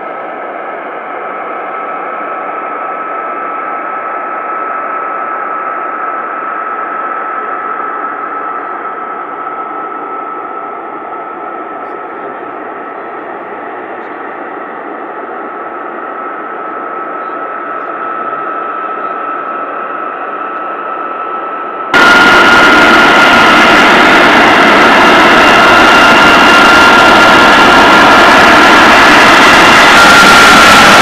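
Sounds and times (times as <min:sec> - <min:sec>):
jet engines whining: 0:00.0 - 0:31.0
jet engine rushing noise: 0:17.4 - 0:31.0.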